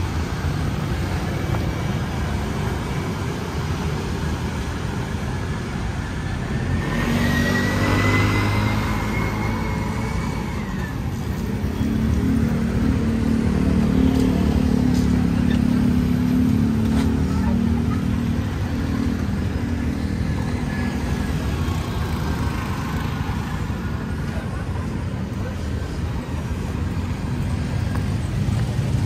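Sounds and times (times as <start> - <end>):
street traffic: 0.0 - 29.0
vehicle engine passing close: 6.7 - 18.2.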